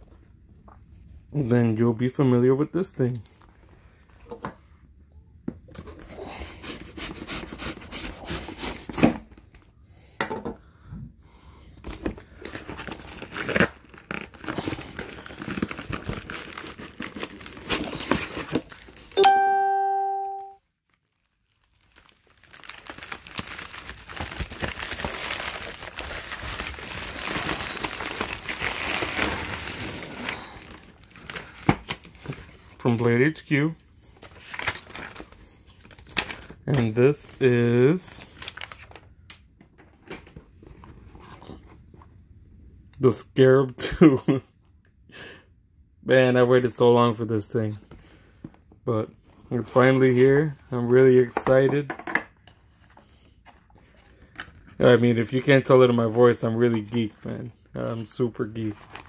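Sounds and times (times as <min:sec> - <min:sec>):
packing paper crinkling: 0:12.1 - 0:19.2, 0:20.8 - 0:33.4, 0:34.2 - 0:39.2, 0:58.0 - 0:59.0
bell-like chime: 0:19.2 - 0:20.6.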